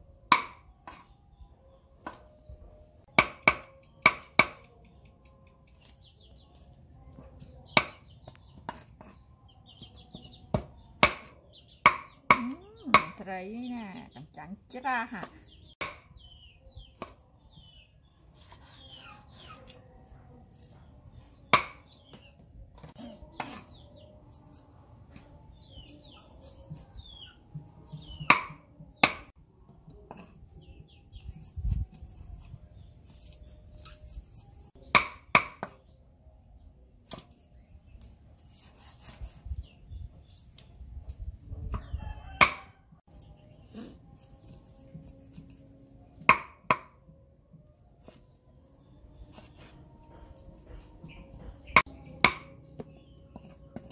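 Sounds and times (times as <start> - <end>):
cleaver chopping on wooden block: 0.3 - 1.1, 3.1 - 4.7, 7.7 - 8.9, 10.5 - 13.2, 15.8 - 16.1, 21.5 - 22.0, 27.9 - 29.3, 34.9 - 35.8, 41.7 - 42.7, 46.2 - 47.0, 51.8 - 53.9.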